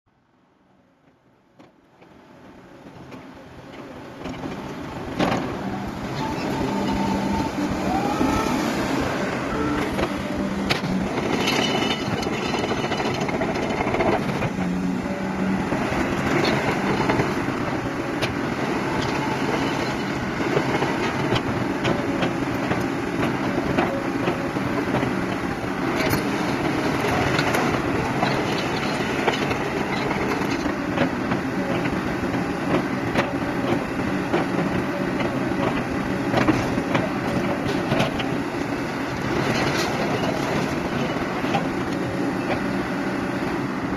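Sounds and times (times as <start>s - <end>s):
excavator diesel engine running: 1.9s - 43.9s.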